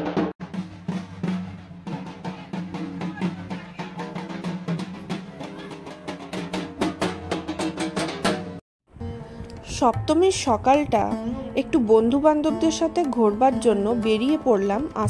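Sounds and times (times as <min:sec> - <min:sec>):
fast dense drumming: 0:00.0 - 0:08.6.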